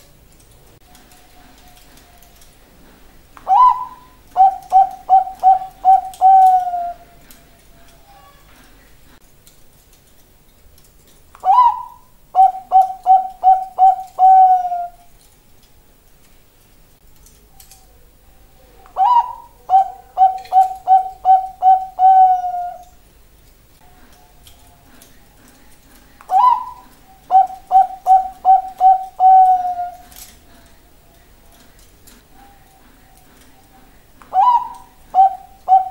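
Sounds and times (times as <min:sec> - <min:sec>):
dove cooing: 0:03.4 - 0:07.5, 0:11.4 - 0:15.1, 0:18.6 - 0:23.0, 0:23.8 - 0:31.0, 0:31.6 - 0:35.9.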